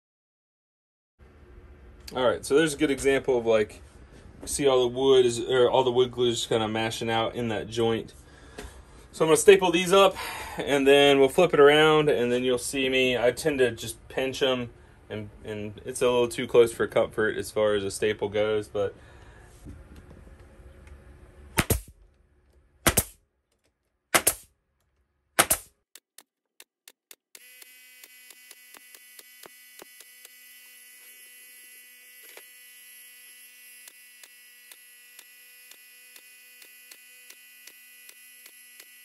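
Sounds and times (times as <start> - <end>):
pneumatic stapler firing: 21.6 - 21.9, 22.8 - 23.2, 24.1 - 24.5, 25.4 - 25.7.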